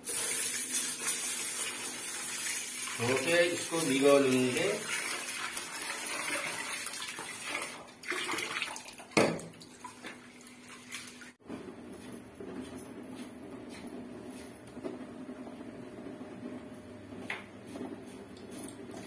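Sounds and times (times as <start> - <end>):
tap water running into pot: 0.0 - 11.4.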